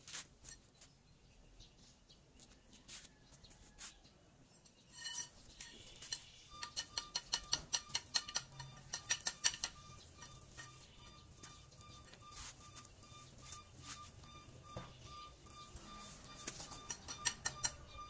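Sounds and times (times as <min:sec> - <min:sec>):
hand tools clinking on steel: 0:04.6 - 0:12.2, 0:16.5 - 0:18.0.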